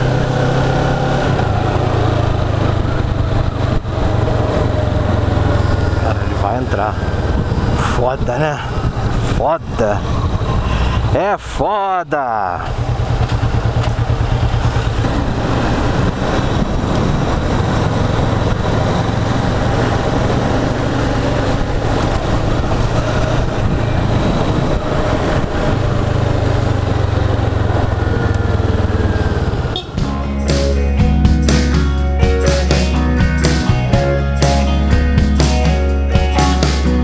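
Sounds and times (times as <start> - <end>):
motorcycle engine running: 0.0 - 7.9, 12.6 - 37.0.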